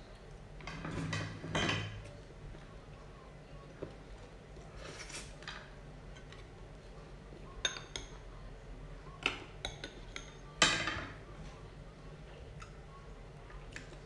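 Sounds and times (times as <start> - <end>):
metal spoon clinking on bowl: 7.6 - 8.2.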